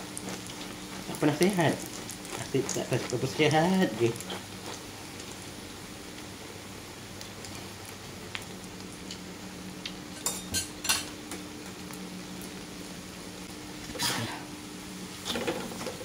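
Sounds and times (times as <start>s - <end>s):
omelette sizzling in oil: 0.0s - 16.0s.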